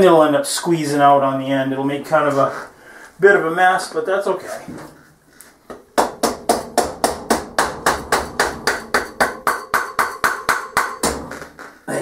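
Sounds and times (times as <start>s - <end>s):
hammer tapping metal axle: 6.5s - 11.7s.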